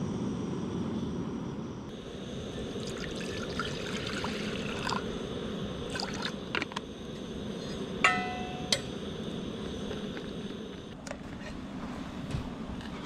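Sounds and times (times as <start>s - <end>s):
sharp metallic clink: 8.0s - 9.0s.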